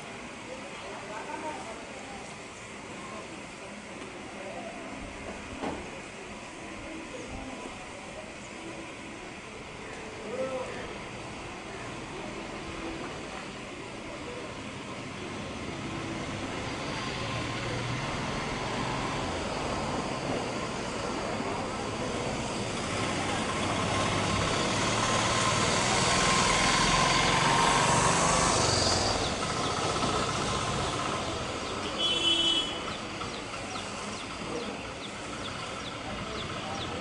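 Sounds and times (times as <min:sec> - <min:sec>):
passing vehicle rumble and hiss: 0:00.0 - 0:37.0.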